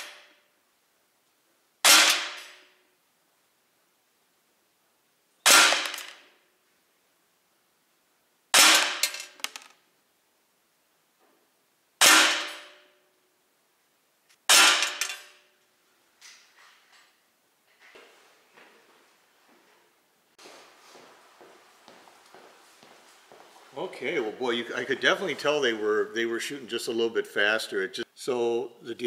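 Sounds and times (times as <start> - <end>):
air pistol shots: 0.0 - 0.4, 1.8 - 2.7, 5.4 - 6.3, 8.5 - 9.4, 12.0 - 12.9, 14.4 - 15.4.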